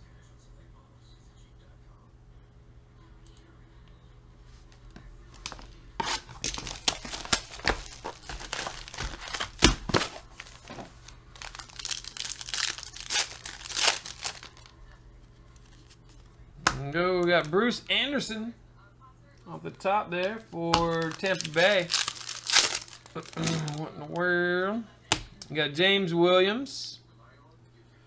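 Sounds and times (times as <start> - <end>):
wrapper ripping: 5.4 - 14.7, 20.8 - 23.8
card packaging crinkling: 5.4 - 14.8, 15.5 - 16.3, 20.8 - 23.8.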